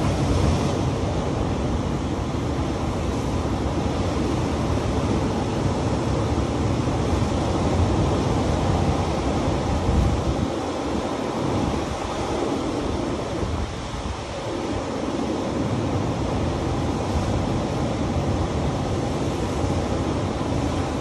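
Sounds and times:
wind buffeting microphone: 7.0 - 21.0.

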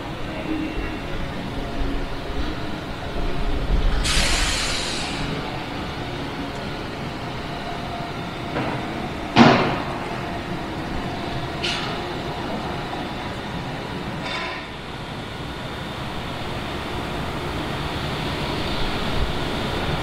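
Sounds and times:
train idling rumble: 0.0 - 20.0
air hiss bursts: 3.9 - 5.4.

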